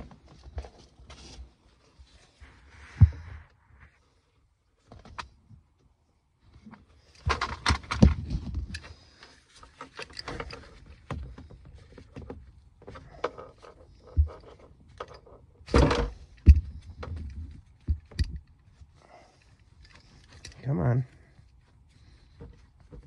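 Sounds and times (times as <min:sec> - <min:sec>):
seatbelt fittings clicking and knocking: 0:09.6 - 0:18.6.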